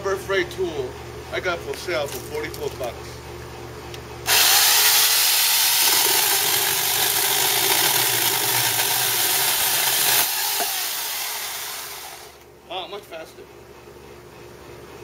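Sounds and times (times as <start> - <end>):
electric chainsaw cutting wood: 4.3 - 12.4.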